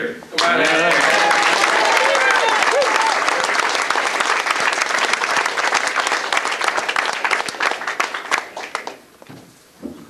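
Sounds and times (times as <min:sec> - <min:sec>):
audience applauding: 0:00.3 - 0:09.2.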